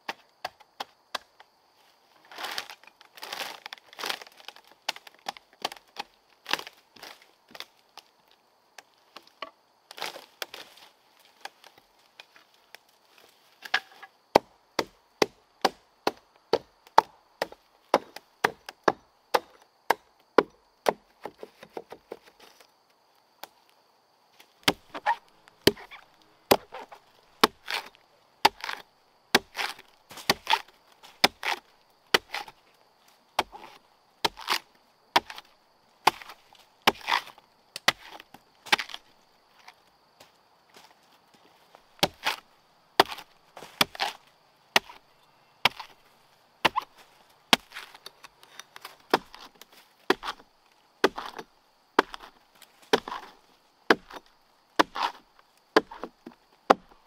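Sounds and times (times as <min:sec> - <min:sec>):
axe chopping wood: 0:13.6 - 0:22.2, 0:24.6 - 0:32.6, 0:33.4 - 0:39.0, 0:42.0 - 0:42.4, 0:43.0 - 0:44.2, 0:44.8 - 0:45.0, 0:45.6 - 0:46.0, 0:46.6 - 0:48.1, 0:48.8 - 0:50.4, 0:51.0 - 0:57.0
faint high-pitched buzz: 0:42.4 - 0:49.0.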